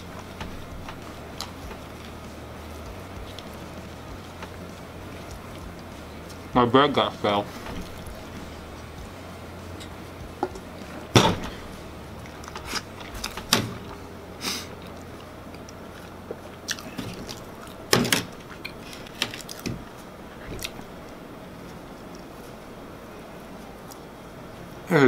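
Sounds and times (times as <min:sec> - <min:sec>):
knocks: 0:10.3 - 0:11.6
person biting and chewing: 0:14.7 - 0:17.8, 0:18.4 - 0:19.7.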